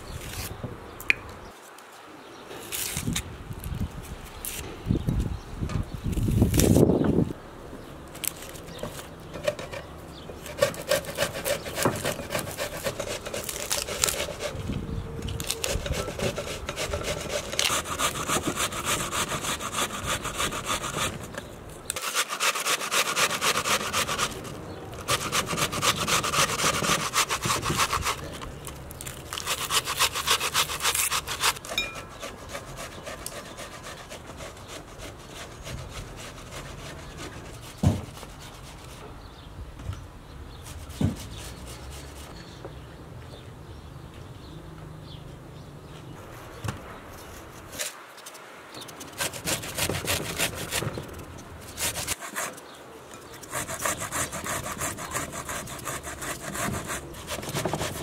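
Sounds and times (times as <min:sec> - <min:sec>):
onion grated on metal grater: 0:10.5 - 0:14.6.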